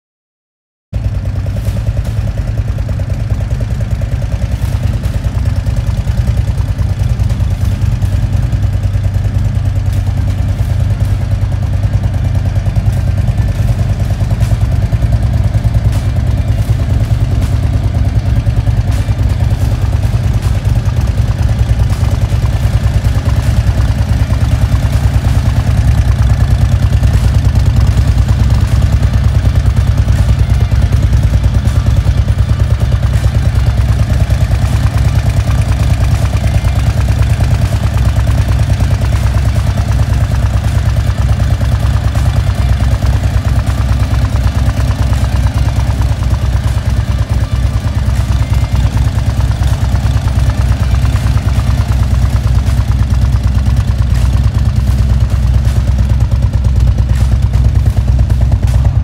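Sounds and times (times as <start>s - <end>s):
motorcycle engine idling: 1.0s - 59.0s.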